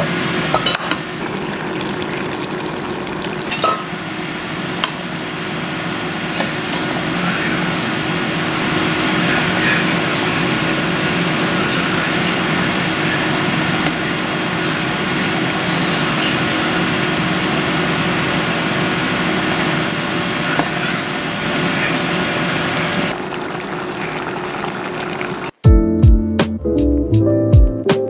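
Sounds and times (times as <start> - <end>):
metal lid and ladle clinking: 0.6 - 1.0, 3.5 - 3.9
liquid simmering hiss: 1.0 - 25.6.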